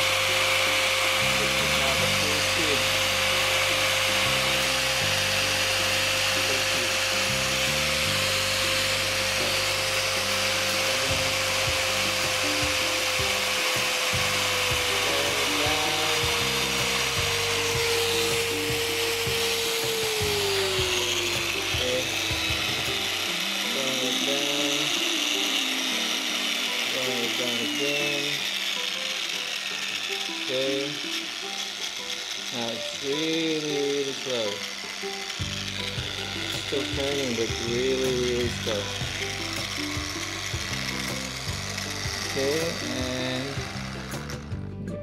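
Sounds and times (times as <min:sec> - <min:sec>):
angle grinder motor whine: 0:00.0 - 0:45.0
background music: 0:00.0 - 0:45.0.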